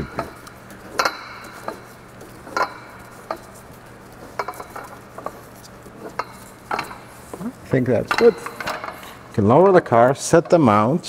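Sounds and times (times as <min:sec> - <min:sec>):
light metallic clinks and taps: 0:04.4 - 0:07.4.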